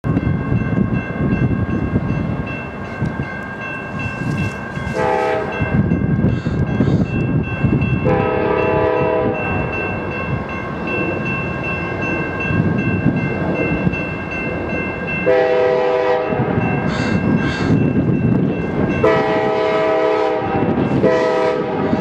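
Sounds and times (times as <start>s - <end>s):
crossing signal bell ringing: 0.0s - 22.0s
train air horn blasts: 4.8s - 5.7s, 8.0s - 9.6s, 15.3s - 17.1s, 19.0s - 22.0s.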